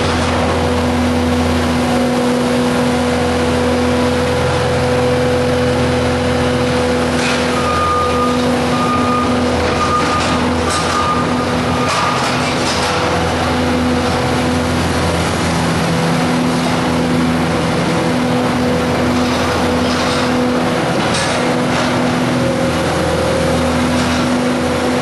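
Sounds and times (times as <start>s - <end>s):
diesel engine running with whine: 0.0s - 25.0s
backup alarm beeping: 7.5s - 12.1s.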